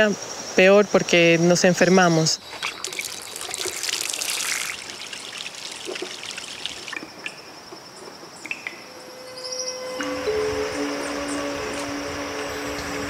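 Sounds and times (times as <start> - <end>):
insect trilling: 2.1 - 8.0
bird calls: 2.4 - 9.8
water pouring from tap: 2.6 - 7.0.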